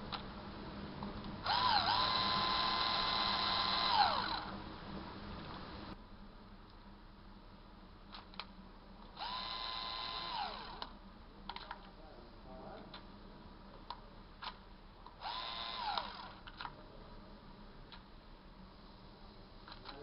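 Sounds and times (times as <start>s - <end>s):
cordless screwdriver motor whining: 1.4s - 4.5s, 9.2s - 10.9s, 15.2s - 16.4s.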